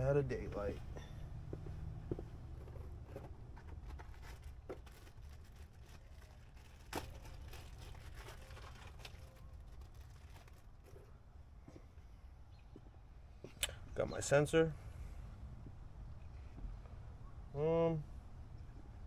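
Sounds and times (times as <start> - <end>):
small clicks and rustles: 2.6 - 11.1.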